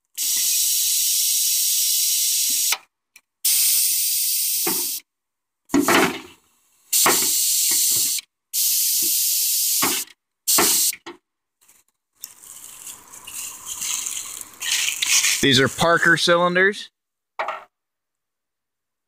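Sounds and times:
compressed air hissing: 0.1 - 5.0, 5.8 - 11.0, 12.4 - 15.6
short air puffs: 0.2 - 5.0, 6.8 - 11.0
valve thud: 4.5 - 5.0, 5.7 - 6.3, 7.0 - 8.2, 9.0 - 11.2.

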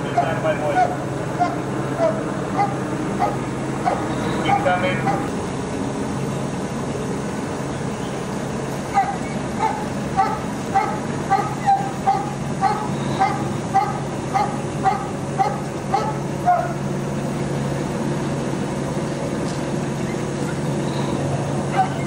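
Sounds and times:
steady low hum: 0.0 - 22.0
dog barking: 0.2 - 5.3, 8.9 - 16.8, 21.7 - 22.0.

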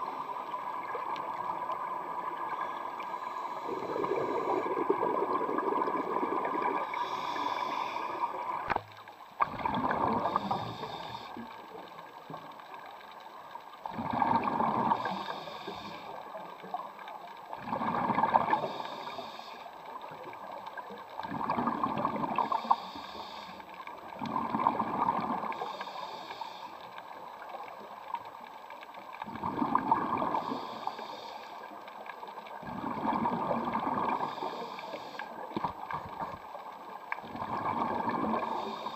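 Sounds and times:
exhaled bubbles gurgling underwater: 0.0 - 38.9
regulator hiss: 6.8 - 8.5, 10.2 - 11.4, 14.9 - 16.2, 18.6 - 19.8, 22.4 - 23.8, 25.6 - 27.0, 30.4 - 31.8, 34.2 - 35.5, 38.4 - 38.9.

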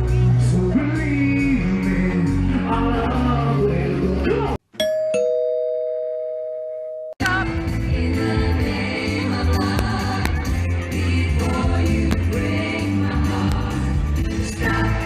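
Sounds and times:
live band with singer: 0.0 - 4.6
two-note ding-dong chime: 4.8 - 7.2.

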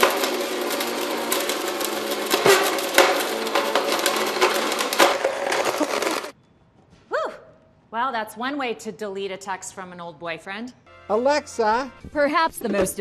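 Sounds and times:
blender motor hum: 0.0 - 6.4.

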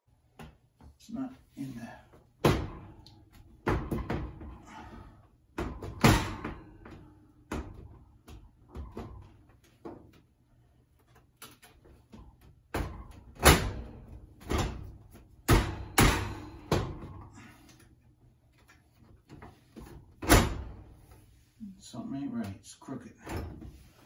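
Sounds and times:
oven door clunking and rattling: 5.6 - 6.9, 12.7 - 17.3, 19.8 - 20.9.

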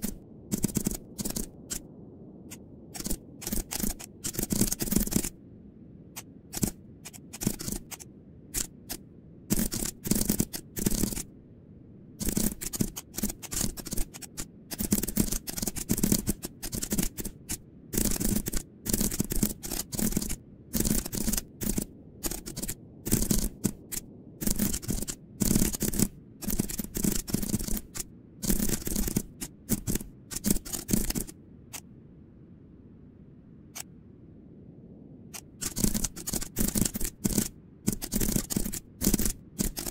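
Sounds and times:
keyboard typing: 0.0 - 1.8, 2.9 - 5.3, 6.2 - 11.3, 12.2 - 31.8, 35.4 - 39.9.

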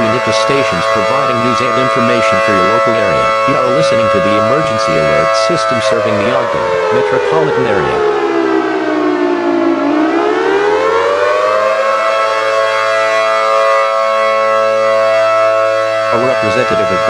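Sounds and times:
siren rising and falling: 0.0 - 17.0.

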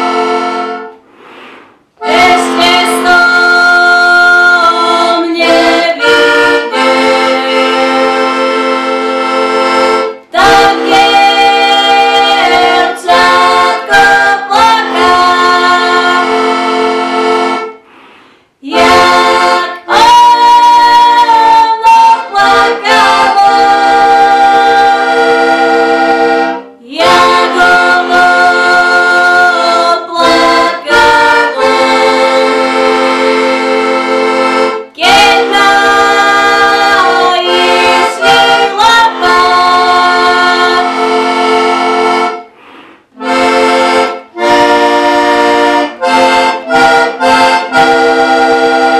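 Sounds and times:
button accordion playing chords: 0.0 - 48.9
woman singing: 2.0 - 8.3, 10.3 - 16.9, 18.6 - 25.4, 26.8 - 32.8, 34.9 - 41.8.

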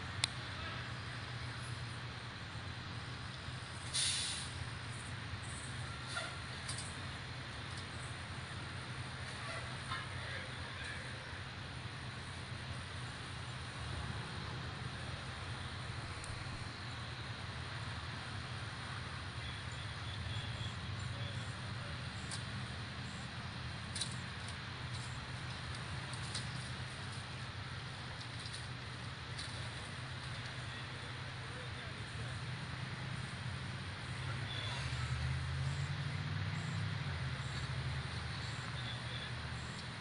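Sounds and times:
vehicle engines idling: 0.0 - 40.0
steady hiss: 0.4 - 19.7.

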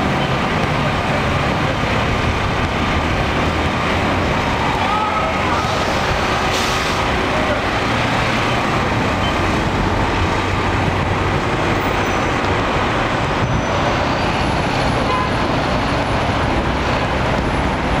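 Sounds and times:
city street traffic: 0.0 - 18.0.

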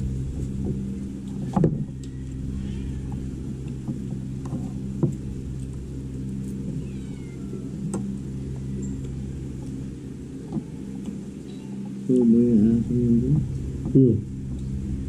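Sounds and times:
low motor hum: 0.0 - 15.0.

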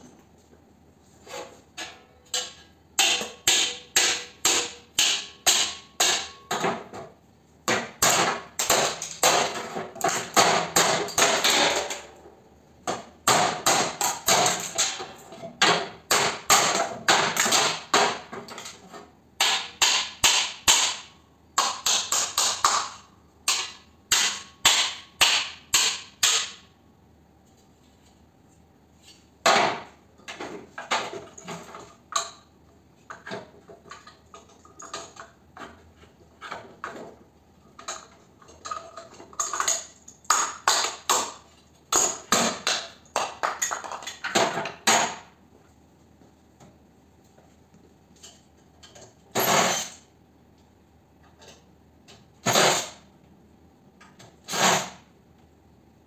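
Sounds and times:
hammer striking metal: 1.8 - 6.6, 19.4 - 22.8.

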